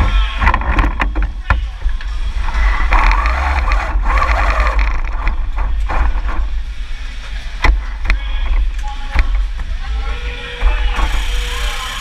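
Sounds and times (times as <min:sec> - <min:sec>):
robot motor rumble: 0:02.4 - 0:06.5
sharp knocks and clatters: 0:02.8 - 0:06.7.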